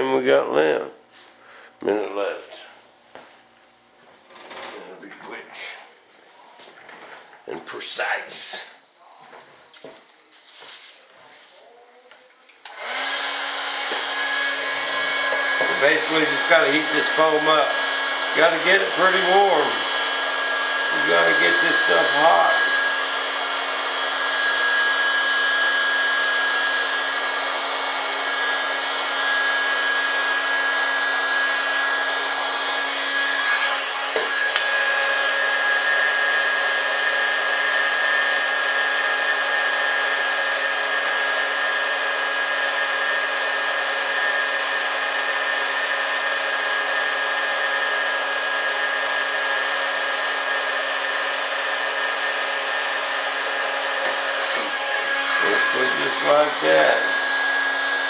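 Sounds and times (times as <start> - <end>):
heat gun blowing with whine: 12.6 - 58.0.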